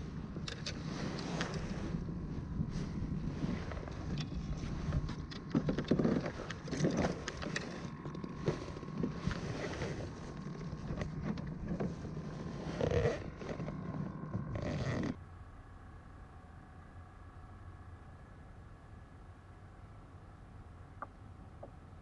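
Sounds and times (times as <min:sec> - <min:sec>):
wind rumbling on microphone: 0:00.0 - 0:15.2.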